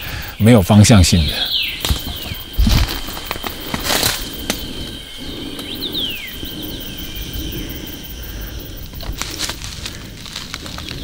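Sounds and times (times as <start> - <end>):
high-pitched insect drone: 0.0 - 11.0
footsteps in undergrowth: 8.8 - 11.0.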